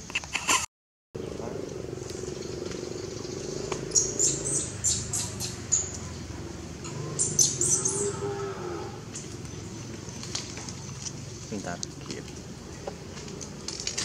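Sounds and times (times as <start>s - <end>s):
steady low drone: 1.2s - 13.7s
high-pitched chirping calls: 2.3s - 8.5s.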